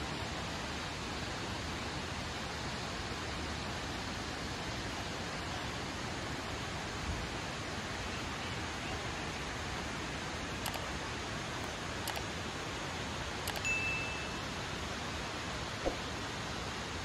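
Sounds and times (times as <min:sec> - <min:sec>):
click and chime sound effect: 0:13.5 - 0:14.4.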